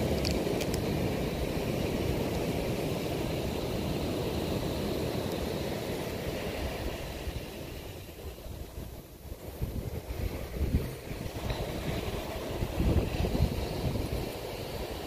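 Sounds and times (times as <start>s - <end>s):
wind buffeting microphone: 6.5s - 15.0s.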